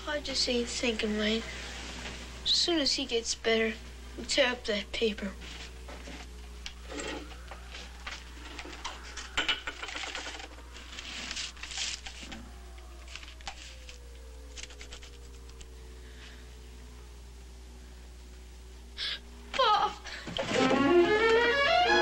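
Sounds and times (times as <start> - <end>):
steady low hum: 0.0 - 22.0
clicks and rustles: 5.5 - 15.8
faint music with falling held tones: 19.6 - 22.0.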